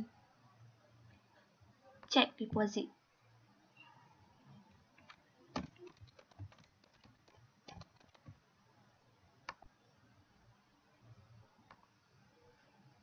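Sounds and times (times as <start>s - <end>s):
keyboard keys clicking: 5.0s - 8.4s.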